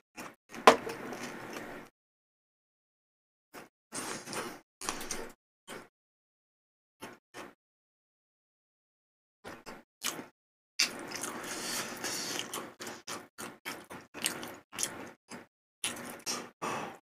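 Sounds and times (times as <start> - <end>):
chewing sounds: 10.0 - 16.4.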